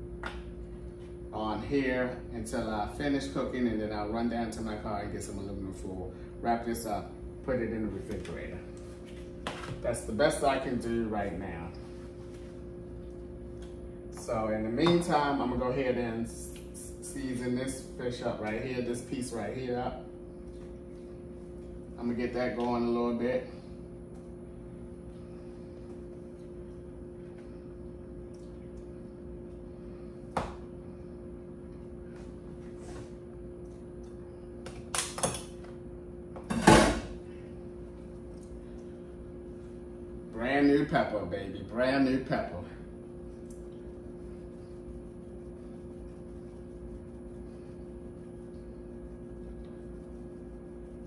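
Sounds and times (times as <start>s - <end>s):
steady hum with fixed tones: 0.0s - 51.0s.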